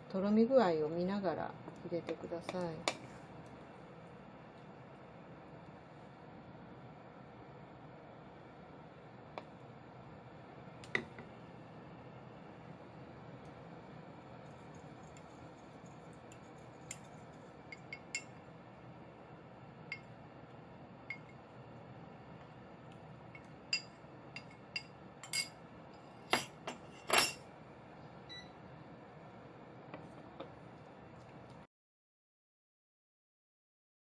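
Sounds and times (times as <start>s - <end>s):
metal spoon clinking glass cup: 23.4s - 25.6s.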